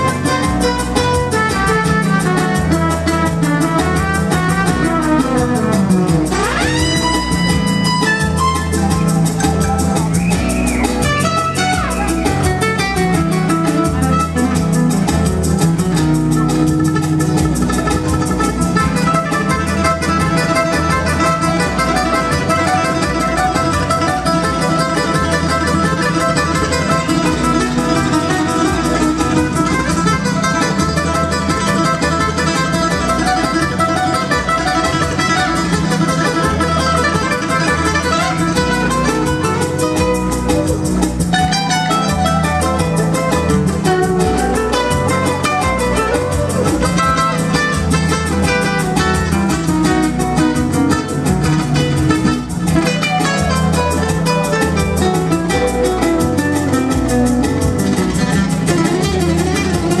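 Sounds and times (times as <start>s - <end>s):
plucked guitar melody: 0.0s - 60.0s
repeating guitar bass part: 0.0s - 60.0s.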